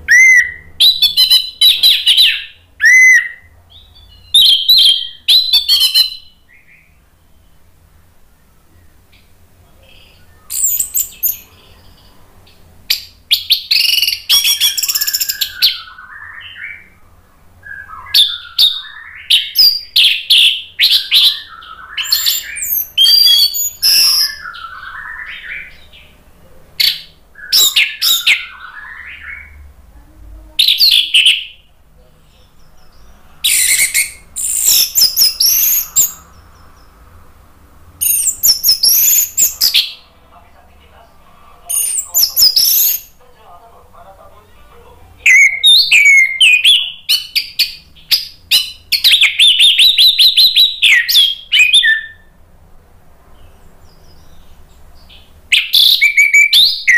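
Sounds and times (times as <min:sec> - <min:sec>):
thrush singing whistled phrases: 0:00.0 - 0:07.6, 0:10.1 - 0:11.5, 0:12.9 - 0:25.9, 0:26.8 - 0:29.7, 0:33.4 - 0:37.0, 0:38.0 - 0:40.1, 0:41.7 - 0:43.2, 0:45.3 - 0:52.3, 0:55.5 - 0:56.9.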